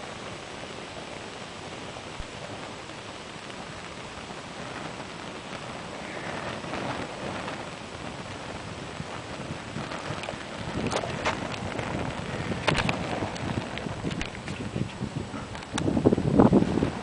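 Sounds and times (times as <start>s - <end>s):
fire hissing and crackling: 0.0s - 17.0s.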